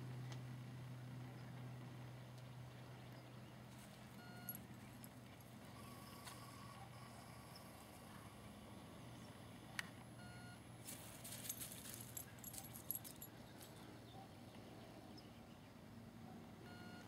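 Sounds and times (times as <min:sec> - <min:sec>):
faint metallic jingling: 0:10.8 - 0:13.9.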